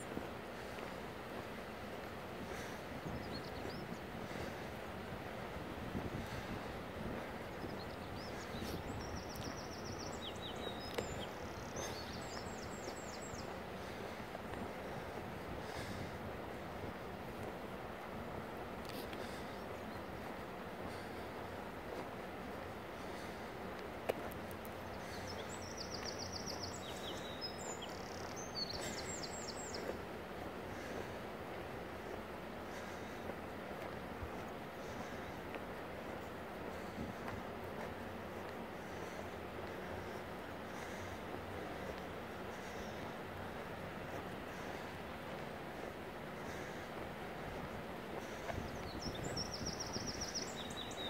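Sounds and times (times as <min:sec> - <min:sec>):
outdoor background hiss: 0:00.0 - 0:51.0
wind rumble on microphone: 0:00.0 - 0:51.0.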